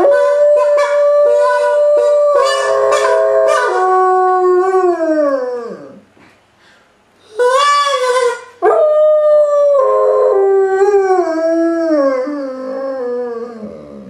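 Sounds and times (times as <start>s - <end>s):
dog howling: 0.0s - 6.0s.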